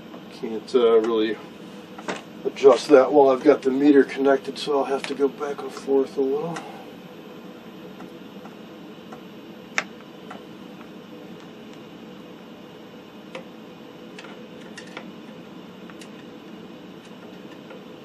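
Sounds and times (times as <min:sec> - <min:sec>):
steady background hum: 0:00.0 - 0:18.0.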